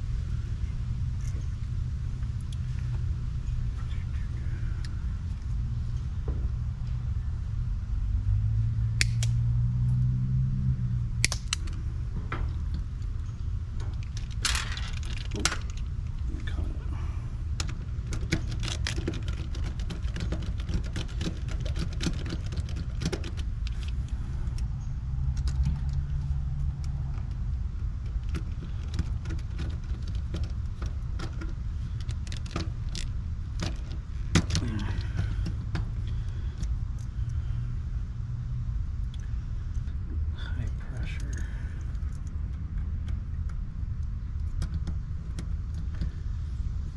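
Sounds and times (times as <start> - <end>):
steady low rumble: 0.0 - 46.9
small metallic clicks and rattles: 11.2 - 16.6, 17.4 - 37.5, 40.6 - 46.9
wire rustles: 11.2 - 37.5.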